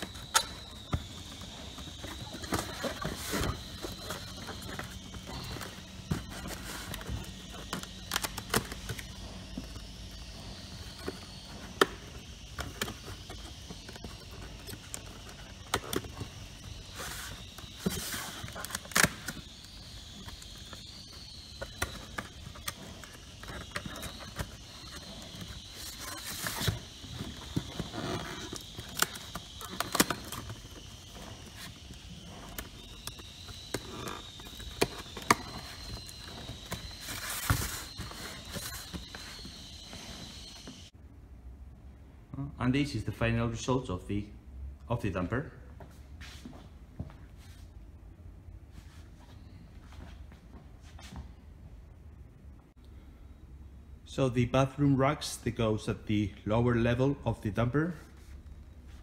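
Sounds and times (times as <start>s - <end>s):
cardboard scraping and rustling: 0.0s - 9.6s, 20.4s - 40.7s.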